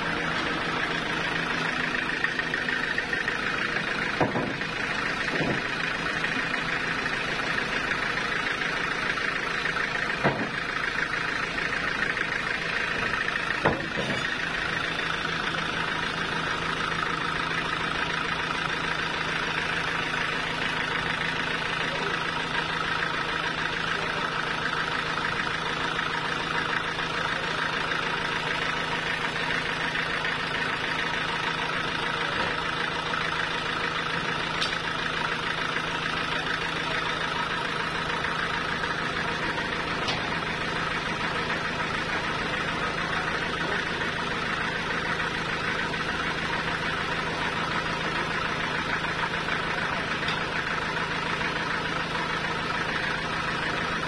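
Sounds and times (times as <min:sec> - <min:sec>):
sawmill engine running: 0:00.0 - 0:54.0
log knocking: 0:04.2 - 0:04.6, 0:05.3 - 0:05.7, 0:10.2 - 0:10.6.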